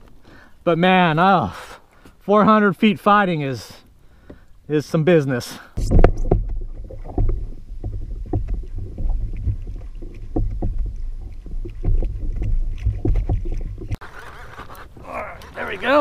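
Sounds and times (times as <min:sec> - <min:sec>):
wind rumble on microphone: 0:05.8 - 0:14.0.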